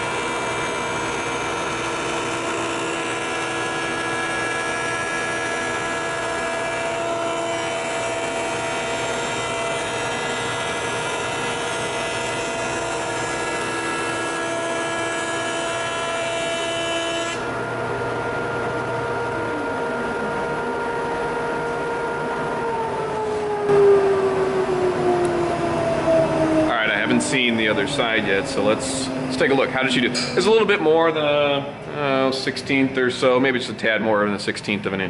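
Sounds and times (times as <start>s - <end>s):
planer cutting wood: 0.0s - 22.7s
jointer machine whine: 0.0s - 33.8s
dust collector running: 0.0s - 35.0s.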